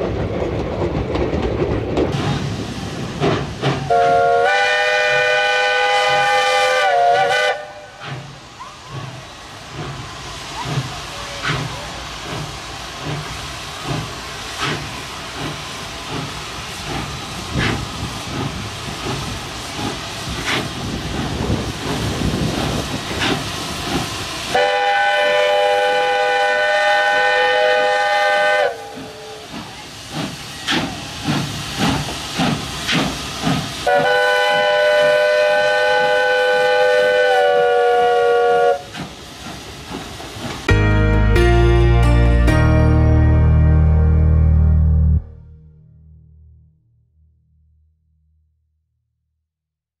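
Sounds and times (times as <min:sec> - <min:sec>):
steam locomotive exhaust chuffs: 0:00.0 - 0:42.9
steam whistle blasts: 0:03.9 - 0:08.3, 0:24.5 - 0:29.6, 0:33.8 - 0:39.0.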